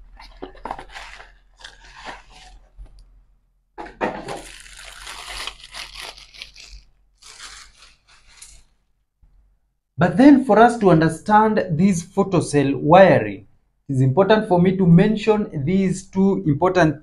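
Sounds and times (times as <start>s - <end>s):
plastic bag crinkling: 0.0s - 3.0s, 4.1s - 8.9s
cardboard box rustling: 0.1s - 2.9s.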